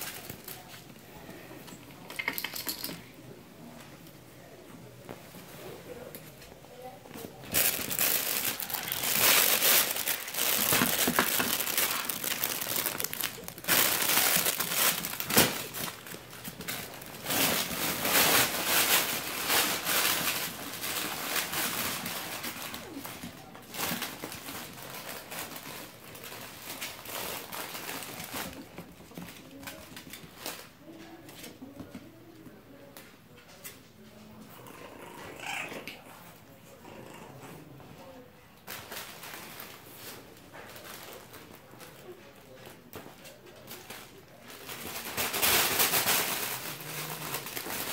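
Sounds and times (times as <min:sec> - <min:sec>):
fabric tunnel crinkling and rustling: 0:07.2 - 0:30.7.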